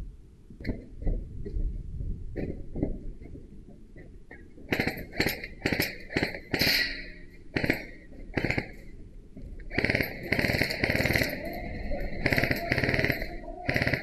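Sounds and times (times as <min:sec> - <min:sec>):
airsoft rifle firing bursts: 0:04.7 - 0:06.8, 0:07.5 - 0:08.9, 0:09.7 - 0:14.0.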